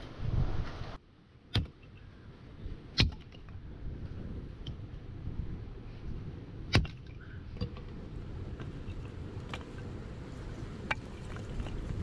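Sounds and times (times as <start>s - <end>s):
low background rumble: 0.0s - 12.0s
axe chopping firewood: 1.5s - 2.0s, 2.9s - 3.5s, 6.6s - 7.9s.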